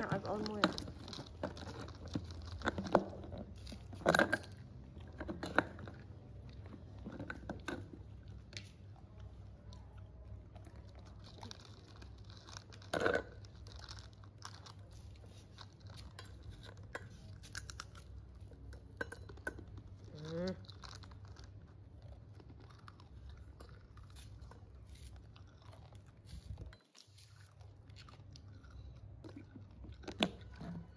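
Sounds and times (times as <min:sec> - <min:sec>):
scooping powder: 0:05.4 - 0:29.4.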